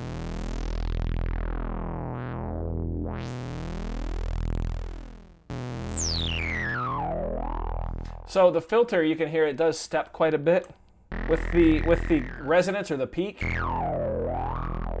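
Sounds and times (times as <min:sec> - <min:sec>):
synthesizer low note: 0:00.0 - 0:08.3, 0:11.1 - 0:12.7, 0:13.4 - 0:15.0.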